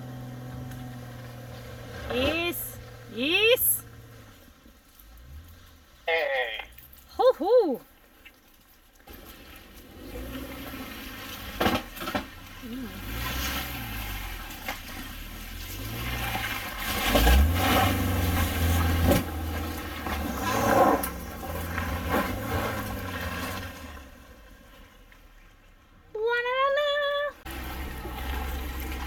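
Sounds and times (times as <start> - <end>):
vehicle engine revving: 0.0 - 6.0, 9.2 - 24.5
tyres scrabbling on trail: 3.8 - 25.7, 27.5 - 29.0.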